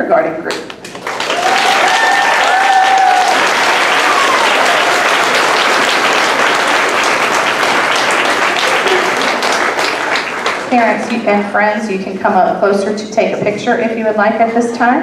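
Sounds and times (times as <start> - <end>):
audience applauding: 0.8 - 11.2.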